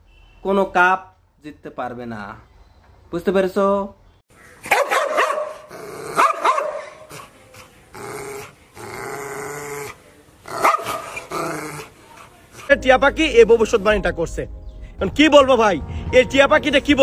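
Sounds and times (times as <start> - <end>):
dog barking: 4.6 - 7.3, 10.5 - 11.9
dog snarling growls: 5.7 - 6.5, 7.9 - 12.0.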